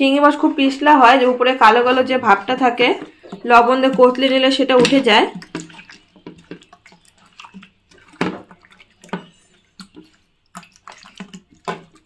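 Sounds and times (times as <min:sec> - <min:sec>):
wet squishes and clicks: 0:02.8 - 0:12.0.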